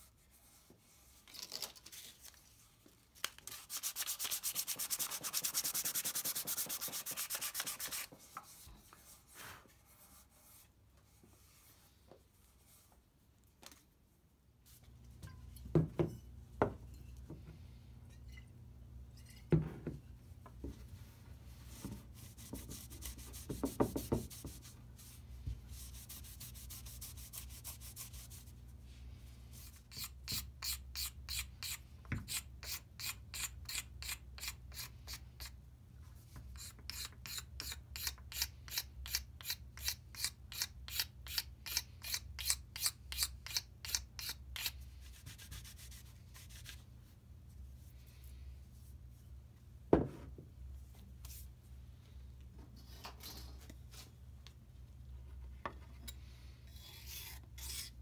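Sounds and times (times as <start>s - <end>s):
knife blade scraping wood: 56.7s - 58.0s.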